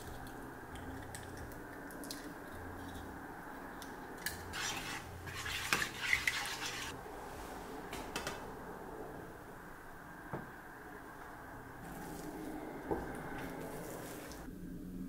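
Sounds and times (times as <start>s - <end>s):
utensil scraping a frying pan: 4.5s - 7.0s.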